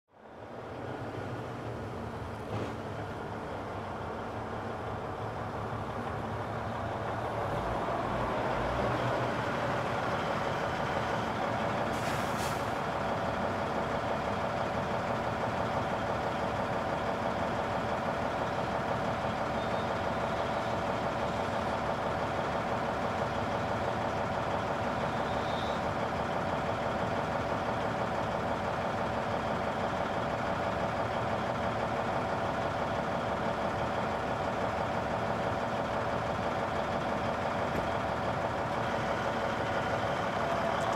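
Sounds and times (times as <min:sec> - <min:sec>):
heavy machinery engine running: 0:00.3 - 0:40.9
short hiss: 0:11.9 - 0:12.8.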